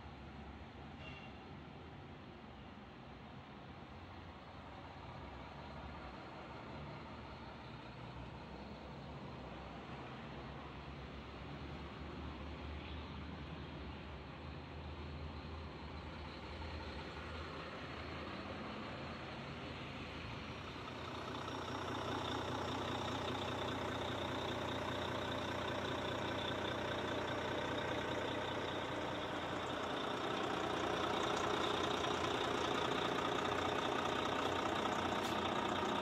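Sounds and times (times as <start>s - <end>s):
diesel engine idling: 13.7s - 36.0s.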